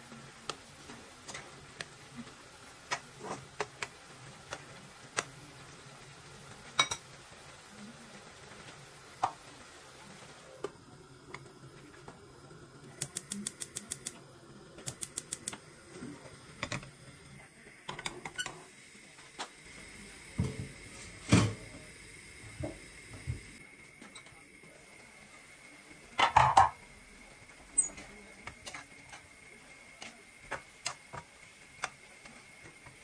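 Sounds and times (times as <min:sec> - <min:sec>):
gas hob igniter ticking: 0:12.9 - 0:14.2, 0:14.8 - 0:15.7
pans clanking on hob grates: 0:26.2 - 0:26.8.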